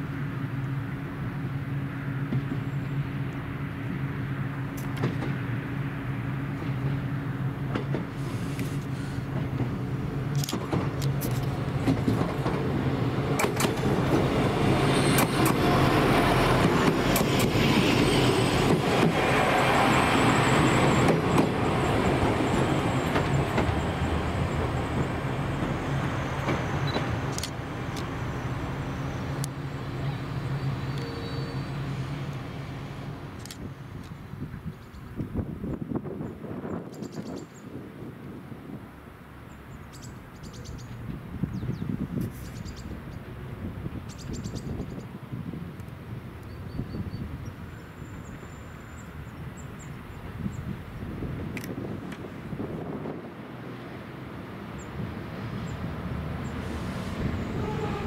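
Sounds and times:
diesel railcar engine: 0.0 - 58.0
train wheel rushing noise: 4.8 - 33.5, 51.1 - 58.0
wheels clicking over rail joints: 7.6 - 17.9
faint high wheel squeal: 30.0 - 31.8.

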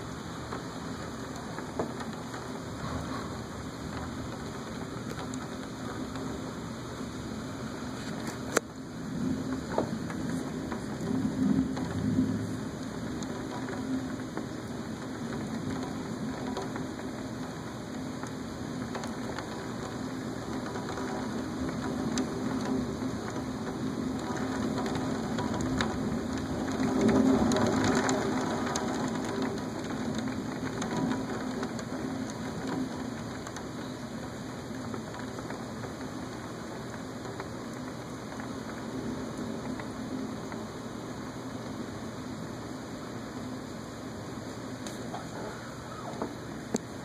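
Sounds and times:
steady rain: 0.0 - 47.0
rumble of thunder: 9.0 - 40.7.

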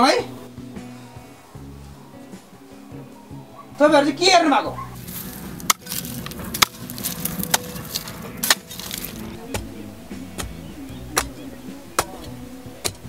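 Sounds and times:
mattock striking stony soil: 5.0 - 9.8.

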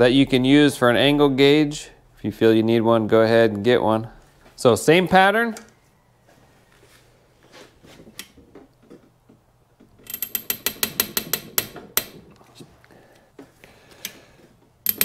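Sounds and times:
ratchet wrench clicking: 10.0 - 12.2.

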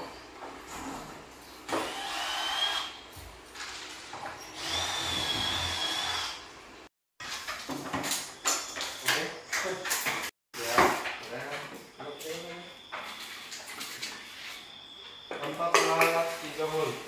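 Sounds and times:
power drill whine: 1.7 - 3.0, 3.6 - 6.5.

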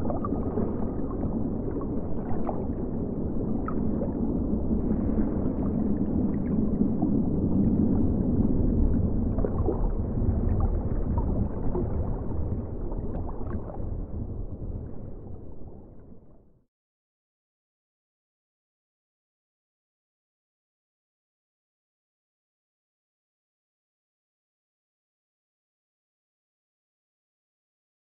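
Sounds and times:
faint water gurgles and ticks: 0.0 - 16.6
low rumbling water: 0.0 - 16.7.

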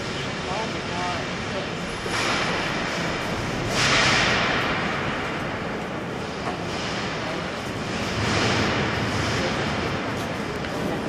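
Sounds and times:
echoing murmur of voices: 0.0 - 11.0.

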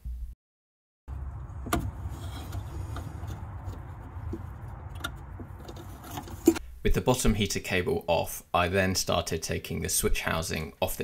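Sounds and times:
low hum: 1.1 - 6.6.

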